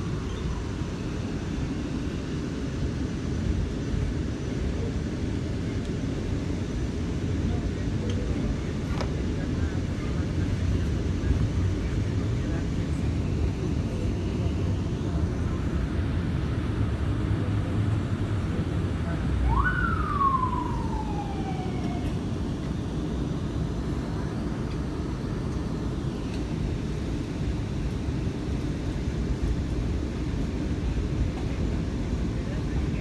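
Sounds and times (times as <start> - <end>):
subway wheels rumbling on track: 0.0 - 33.0.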